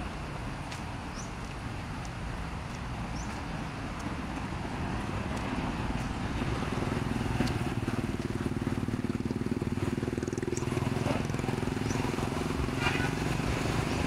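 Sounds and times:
road traffic: 0:00.0 - 0:14.0
vehicle engine running: 0:04.8 - 0:14.0.

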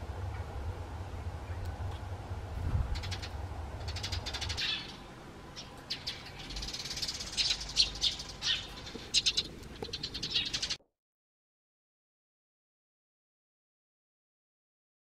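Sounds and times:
low rumble: 0:00.0 - 0:08.8
sparrows chirping: 0:02.9 - 0:10.8.

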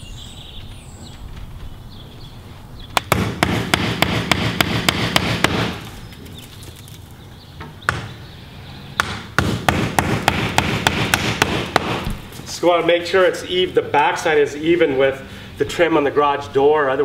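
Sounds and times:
hammer striking nails: 0:03.0 - 0:05.8, 0:09.0 - 0:12.2.

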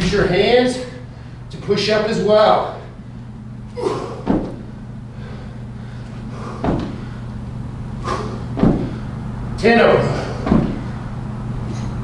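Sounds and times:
feet thudding on carpet: 0:04.2 - 0:04.7, 0:06.6 - 0:07.2, 0:08.5 - 0:09.0, 0:10.4 - 0:11.0.

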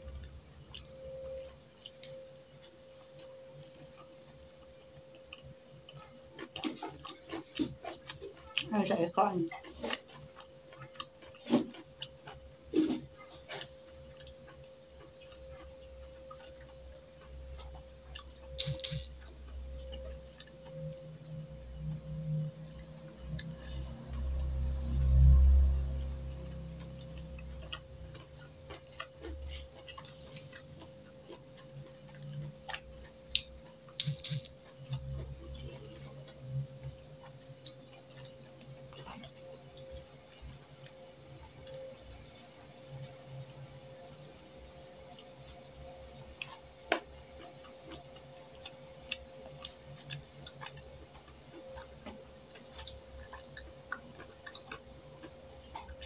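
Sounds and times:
chewing and lip smacking: 0:00.1 - 0:24.9, 0:25.6 - 0:41.8, 0:45.1 - 0:56.0
chewing and finger clicks on plate: 0:13.5 - 0:20.8, 0:26.8 - 0:35.6, 0:46.4 - 0:56.0.

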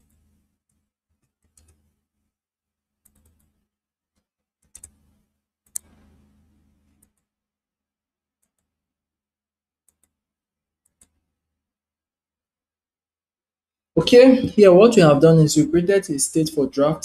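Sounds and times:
computer keyboard typing: 0:00.0 - 0:01.9, 0:03.0 - 0:03.6, 0:04.2 - 0:05.1, 0:05.7 - 0:06.1, 0:08.4 - 0:08.7, 0:09.9 - 0:10.2, 0:10.8 - 0:11.2.

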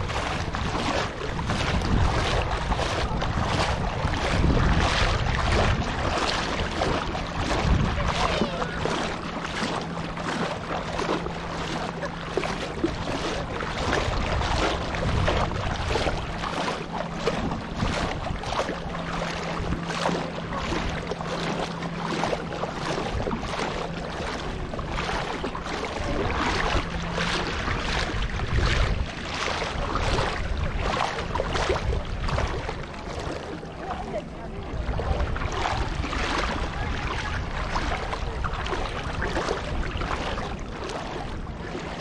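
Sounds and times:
seawater lapping and splashing: 0:00.0 - 0:42.0.

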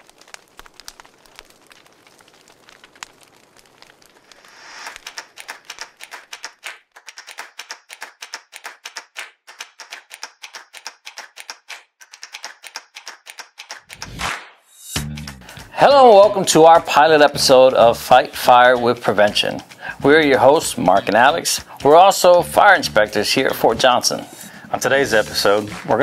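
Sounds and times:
faint crackling: 0:00.0 - 0:06.6
rapid typing clicks: 0:05.0 - 0:14.2.

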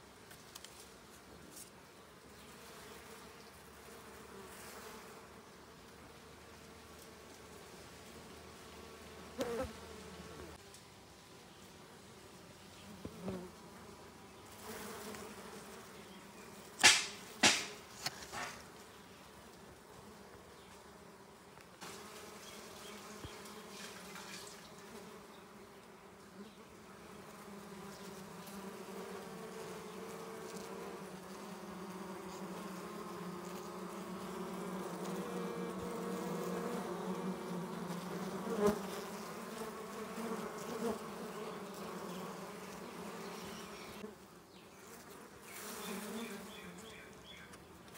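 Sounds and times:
honeybee colony buzzing: 0:01.6 - 0:11.2, 0:11.8 - 0:19.0, 0:19.6 - 0:47.9
sharp knocks: 0:16.8 - 0:18.6.

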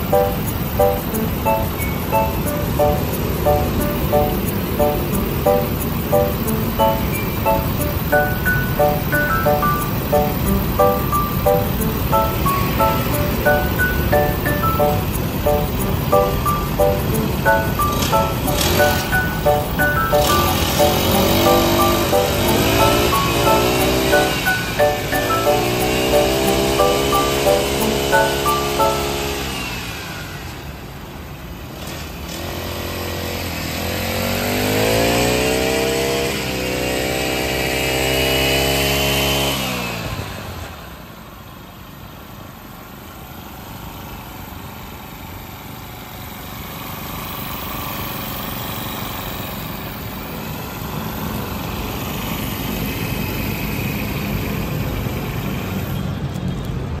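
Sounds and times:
brush cutter engine revving: 0:17.2 - 0:19.1, 0:20.3 - 0:24.1.

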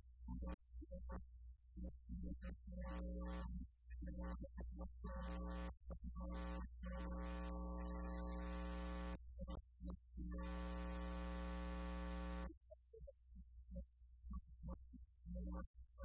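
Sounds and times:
electrical mains hum: 0:07.2 - 0:09.2, 0:10.4 - 0:12.5.

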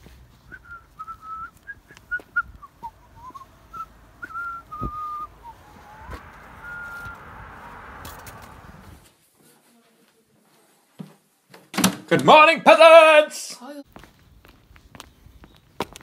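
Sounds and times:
footsteps on pavement: 0:00.0 - 0:09.1, 0:13.9 - 0:16.0
person whistling a tune: 0:00.5 - 0:07.3.

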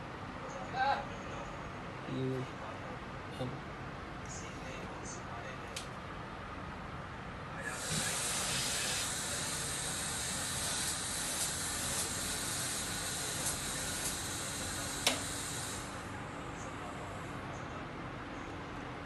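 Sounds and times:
soldering hiss: 0:07.6 - 0:16.1
sharp click: 0:15.0 - 0:15.3.

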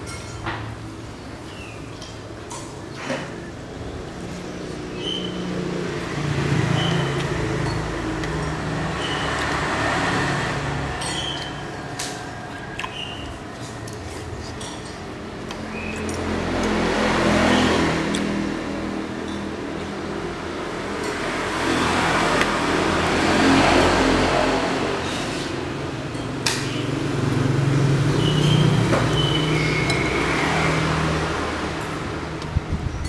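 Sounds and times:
road traffic passing: 0:00.0 - 0:33.0
cutlery clinking on ceramic bowl: 0:11.0 - 0:13.2.

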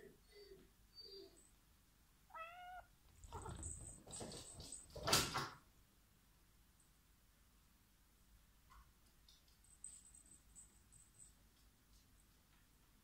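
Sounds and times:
cat meowing: 0:02.3 - 0:03.6.

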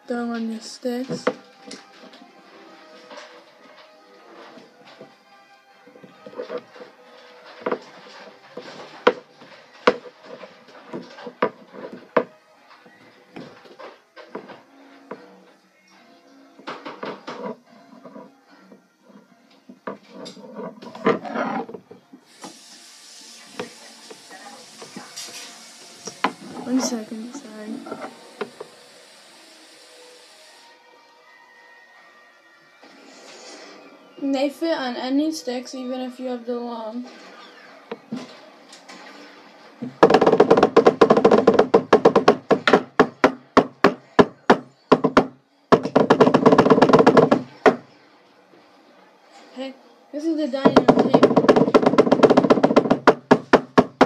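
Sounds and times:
knocks and rubbing on drumstick: 0:06.0 - 0:12.4, 0:16.7 - 0:18.3, 0:19.1 - 0:21.9, 0:39.8 - 0:47.8, 0:50.6 - 0:54.0
steady hiss: 0:22.2 - 0:30.8.

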